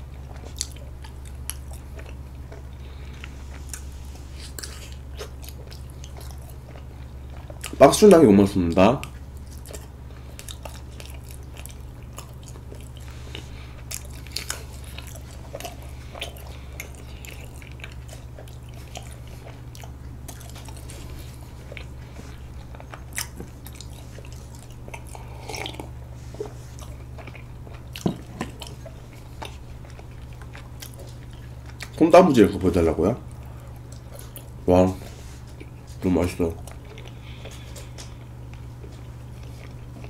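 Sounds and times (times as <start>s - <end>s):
steady low hum: 0.0s - 40.0s
mouth chewing clicks and smacks: 0.2s - 3.9s, 4.5s - 7.9s, 9.0s - 21.9s, 22.5s - 32.0s.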